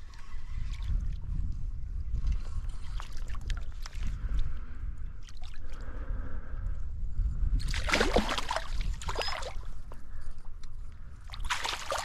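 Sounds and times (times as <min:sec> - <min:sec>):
water splashing: 0:07.6 - 0:09.6, 0:11.3 - 0:12.0.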